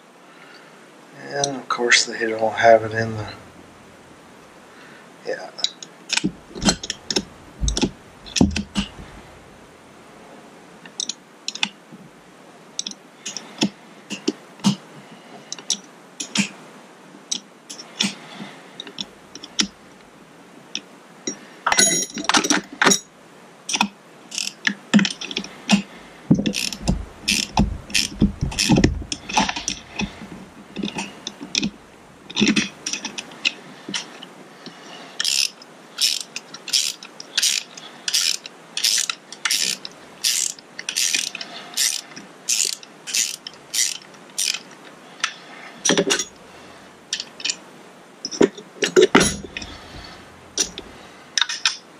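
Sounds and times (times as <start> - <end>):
ratcheting wrench clicking: 6.1 - 9.2, 23.7 - 25.8, 26.4 - 30.2, 35.2 - 44.6
metal parts knocking: 6.1 - 9.4, 24.4 - 31.7, 35.2 - 44.6, 48.8 - 51.0.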